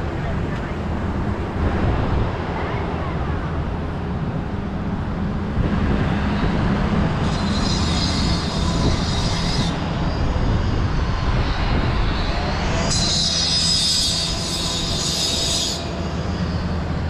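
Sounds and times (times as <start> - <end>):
construction machinery running: 0.0 - 17.0
high metallic grinding: 6.7 - 17.0.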